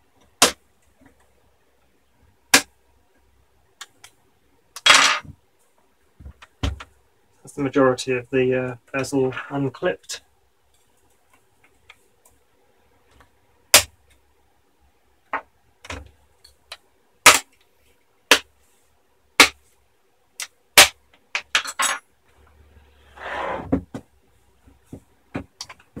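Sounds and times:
laptop scraping: 23.1s - 23.7s.

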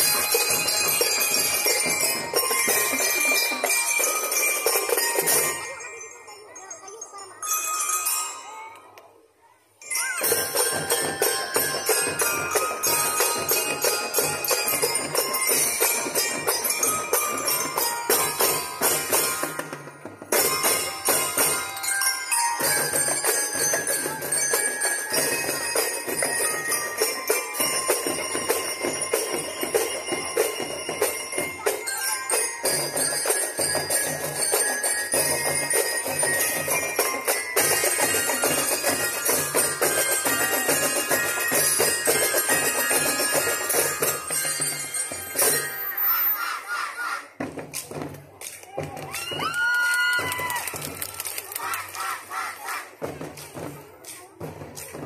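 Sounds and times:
bell lyres playing melody: 0.0s - 8.9s, 9.8s - 46.7s
snare and bass drums marching: 32.6s - 45.6s, 52.9s - 55.0s.

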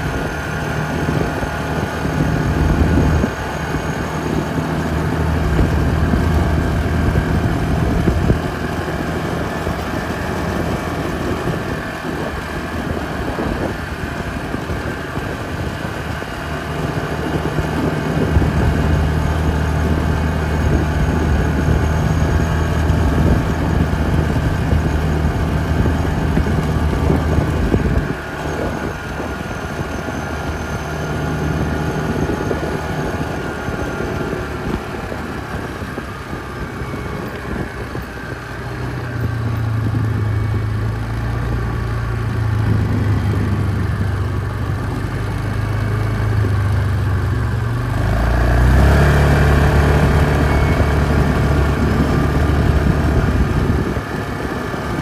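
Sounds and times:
atv engine running: 0.0s - 55.0s.

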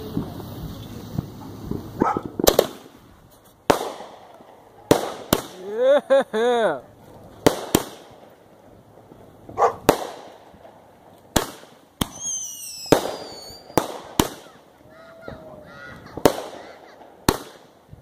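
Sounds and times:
fireworks bangs: 0.0s - 18.0s
firework whistle falling in pitch: 12.1s - 13.8s.

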